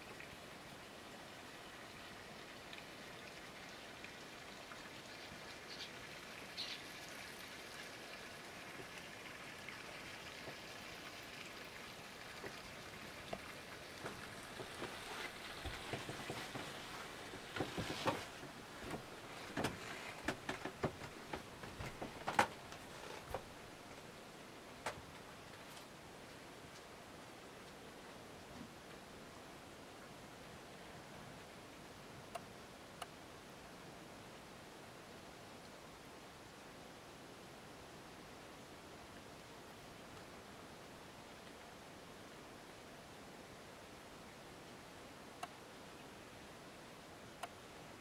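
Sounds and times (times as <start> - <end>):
faint steady hiss: 0.0 - 48.0
handling noise: 14.0 - 23.5.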